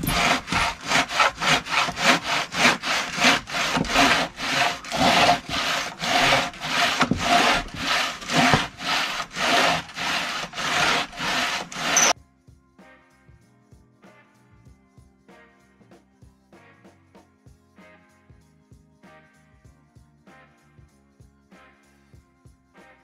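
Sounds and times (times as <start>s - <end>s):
bow saw cutting log: 0.0s - 12.2s.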